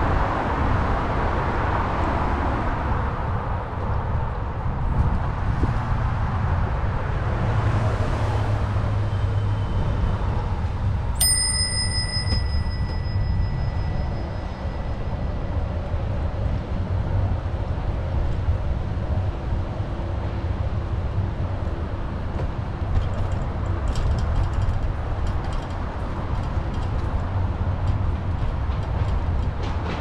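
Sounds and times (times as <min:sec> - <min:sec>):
low rumble from riding: 0:09.5 - 0:30.0
bicycle bell ringing: 0:11.2 - 0:15.4.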